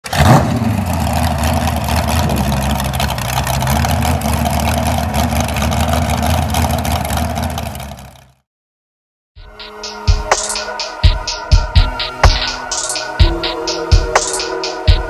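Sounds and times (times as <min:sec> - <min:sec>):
engine running with deep rumble: 0:00.0 - 0:08.4.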